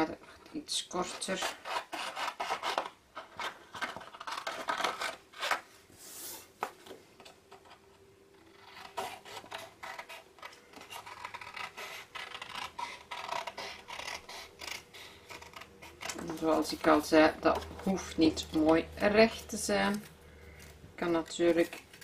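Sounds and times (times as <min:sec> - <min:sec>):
scissors snipping paper: 0:08.5 - 0:20.7.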